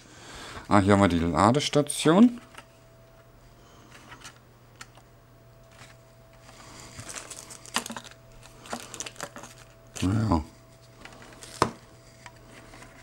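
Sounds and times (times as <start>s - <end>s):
plastic packaging rustling: 5.7s - 10.2s, 10.8s - 13.0s.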